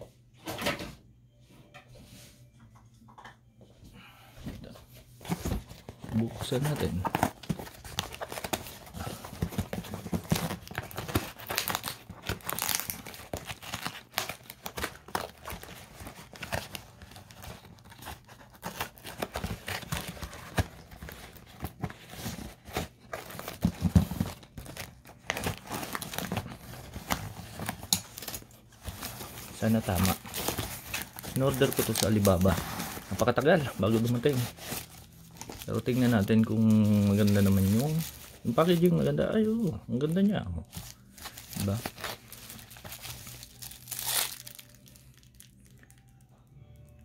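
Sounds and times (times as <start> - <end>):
packing tape tearing: 6.4 - 36.1, 40.9 - 46.1
cardboard box being torn open: 9.2 - 16.8.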